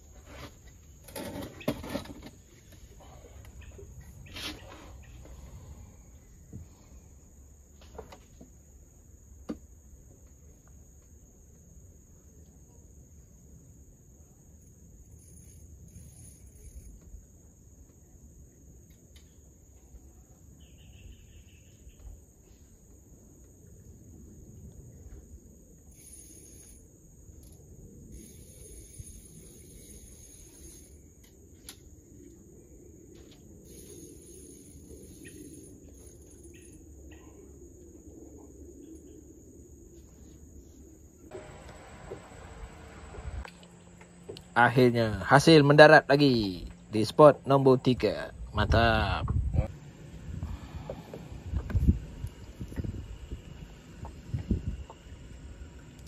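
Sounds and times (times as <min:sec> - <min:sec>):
insects buzzing: 0:00.0 - 0:56.0
high-pitched insect drone: 0:14.2 - 0:17.2, 0:25.8 - 0:31.6, 0:33.6 - 0:38.0.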